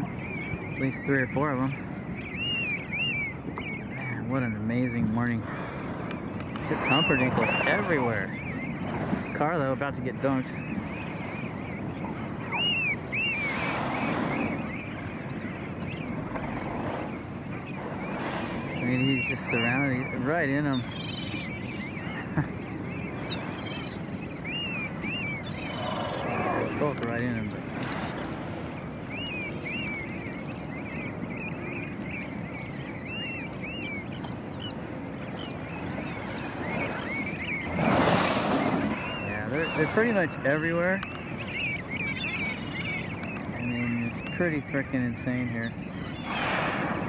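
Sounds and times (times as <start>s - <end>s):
sea noise: 0.0s - 47.0s
seabirds calling: 0.0s - 47.0s
wind on microphone: 0.0s - 47.0s
whale blow whoosh: 37.7s - 39.2s, 46.2s - 47.0s.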